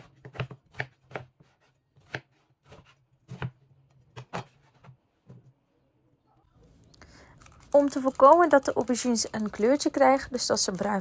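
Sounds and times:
knife chopping on cutting board: 0.0s - 4.9s.

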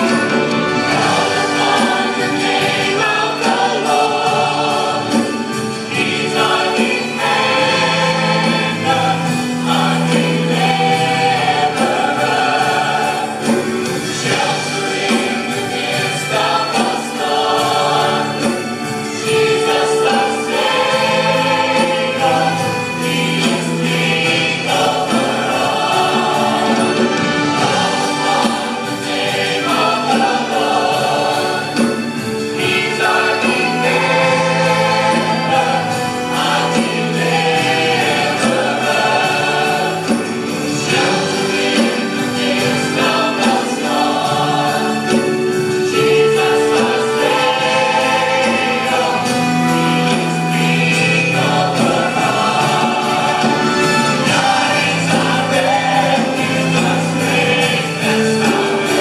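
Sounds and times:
choir singing gospel: 0.0s - 59.0s.

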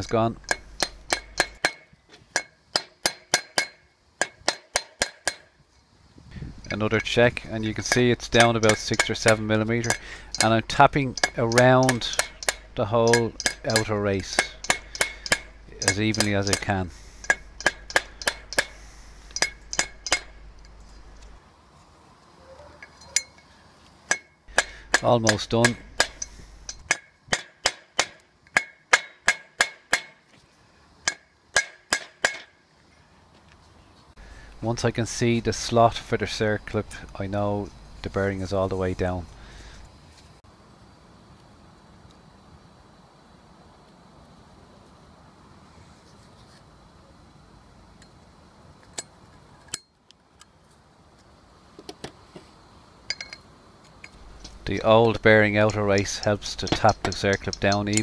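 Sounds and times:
metal clicks and clinks: 0.0s - 1.8s, 6.6s - 21.4s, 22.8s - 23.5s, 24.1s - 27.4s, 53.1s - 58.0s
short metallic ring: 22.8s - 23.5s, 53.1s - 53.4s.

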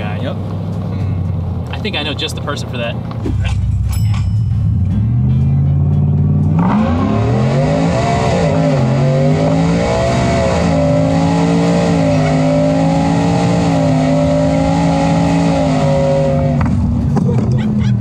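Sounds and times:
engine revving at full throttle: 4.9s - 17.3s.

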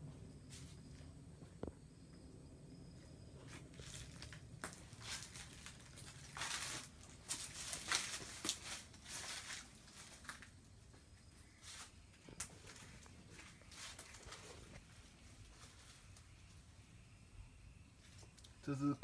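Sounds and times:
footsteps crunching on dry leaves: 3.5s - 10.6s, 11.5s - 16.1s.

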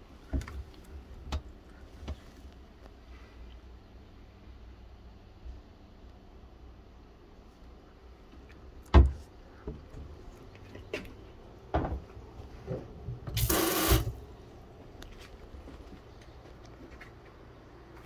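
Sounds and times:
faucet water rushing into sink: 13.4s - 14.2s.

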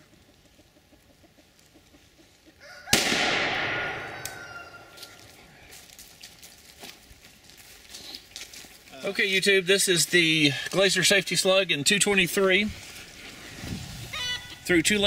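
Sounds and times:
rifle shot: 2.9s - 4.2s
chicken calling: 3.9s - 5.5s, 14.0s - 14.8s.

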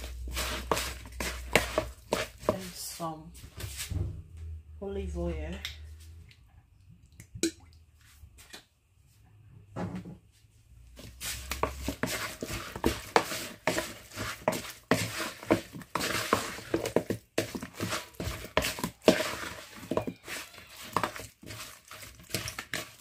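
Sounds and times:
spoon knocking and scraping bowl: 0.0s - 2.8s, 11.3s - 23.0s.

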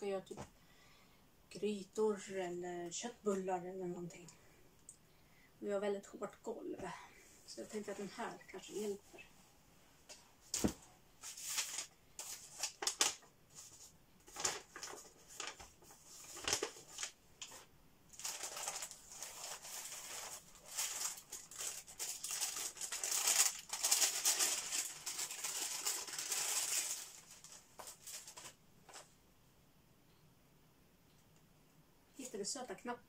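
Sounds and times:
plastic packaging rustling: 10.6s - 29.1s.

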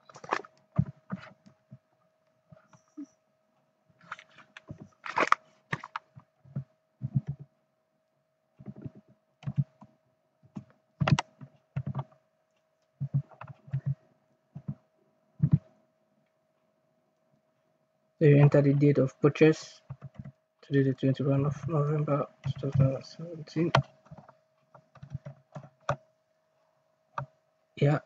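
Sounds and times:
faint steady hum: 0.0s - 28.0s
keyboard typing: 4.6s - 7.4s, 8.6s - 9.9s, 10.5s - 12.2s, 13.0s - 14.0s, 15.4s - 15.7s, 19.9s - 20.3s, 21.6s - 26.0s.

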